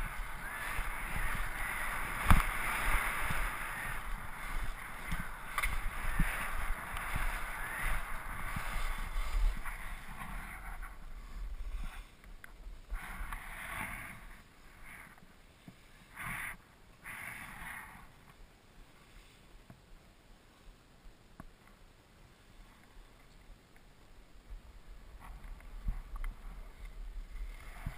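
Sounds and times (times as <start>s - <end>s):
wind rumble on microphone: 0.0s - 14.9s, 24.4s - 27.9s
skis scraping on snow: 0.0s - 18.1s, 25.0s - 27.9s.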